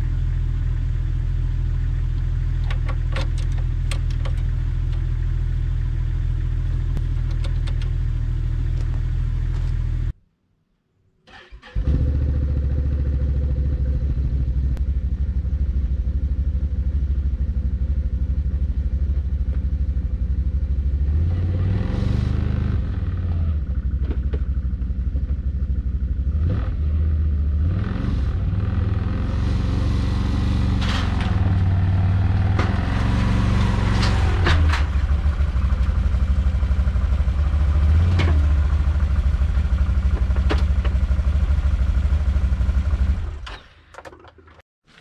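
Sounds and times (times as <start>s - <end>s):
atv engine revving: 11.6s - 14.6s, 21.0s - 23.8s, 26.2s - 43.5s.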